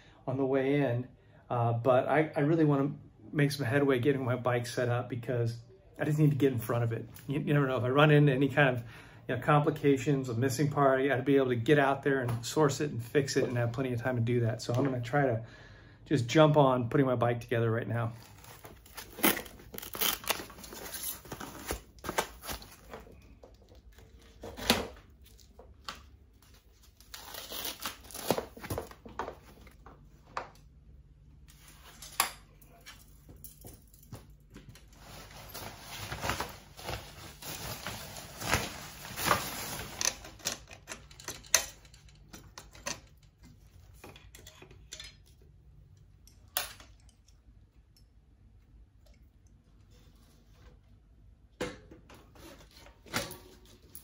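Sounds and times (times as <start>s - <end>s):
packing material rustling: 18.0s - 29.6s, 34.7s - 40.7s
metal bike parts clattering: 39.2s - 45.5s.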